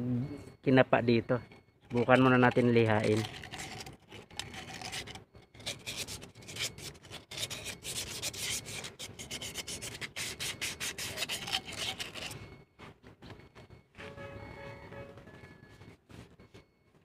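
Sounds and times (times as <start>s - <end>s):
hands rubbing on metal part: 1.9s - 12.5s.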